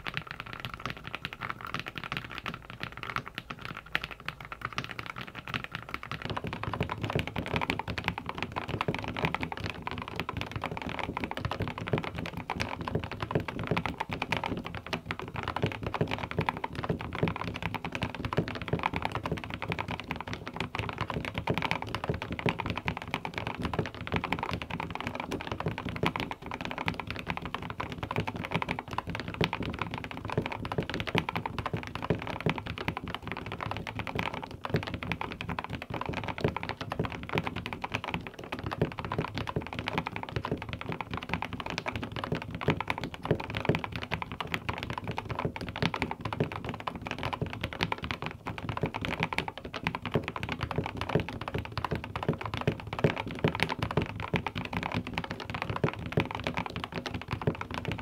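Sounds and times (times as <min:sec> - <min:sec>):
fast mechanical keyboard typing: 0:00.0 - 0:58.0.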